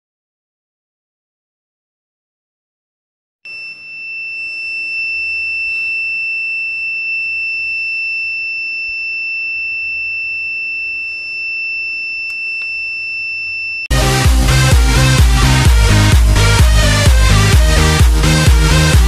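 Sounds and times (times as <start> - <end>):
high-pitched alarm buzzer: 3.5 - 14.6.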